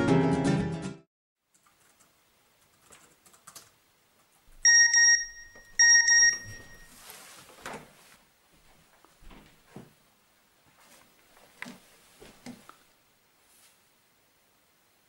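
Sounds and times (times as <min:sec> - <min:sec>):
rustling movement: 0:05.8 - 0:09.9, 0:10.6 - 0:13.9.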